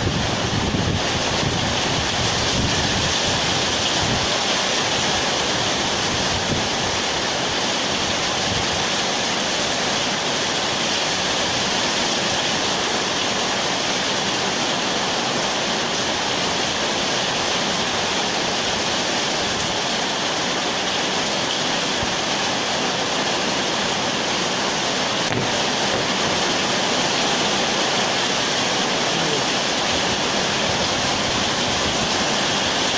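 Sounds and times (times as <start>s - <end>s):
steady rushing noise: 0.0s - 8.8s.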